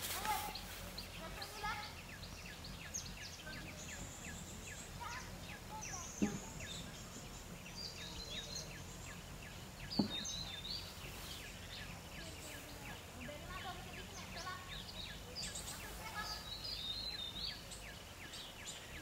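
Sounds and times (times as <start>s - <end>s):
small birds chipping and whistling: 0.0s - 19.0s
dull thumps: 9.9s - 10.4s.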